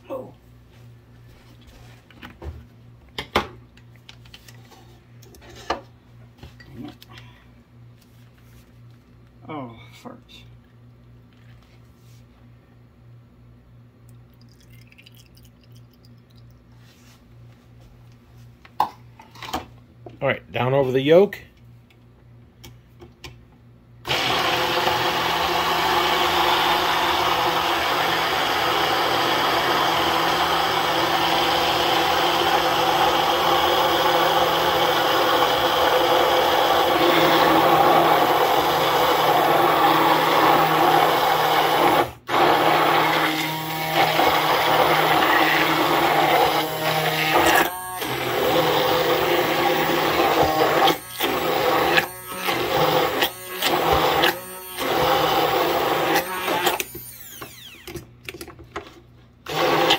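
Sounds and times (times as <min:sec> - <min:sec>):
immersion blender motor humming: 0:24.1 - 0:58.0, 0:59.5 - 0:59.9.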